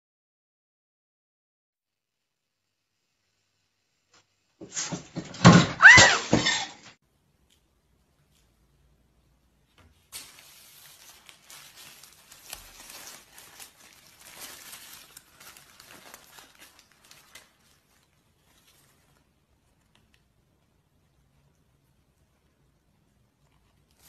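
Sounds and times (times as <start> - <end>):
paper wrapper crinkling: 9.9 - 20.3.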